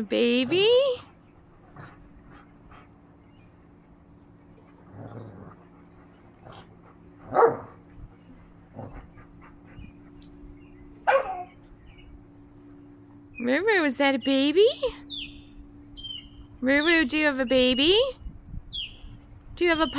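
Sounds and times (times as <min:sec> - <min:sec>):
puppy barking: 0:07.3 - 0:07.7, 0:11.0 - 0:11.6.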